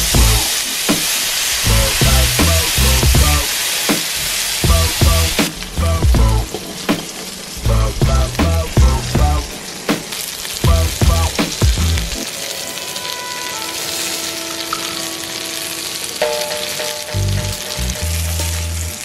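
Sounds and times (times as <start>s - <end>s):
background music with beat: 0.0s - 19.0s
fish frying in butter: 0.0s - 19.0s.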